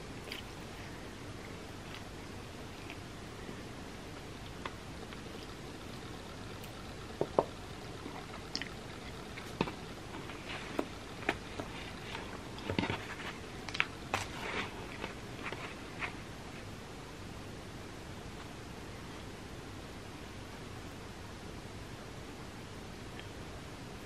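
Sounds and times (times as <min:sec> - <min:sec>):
mouth clicks and smacks: 0:08.3 - 0:09.2.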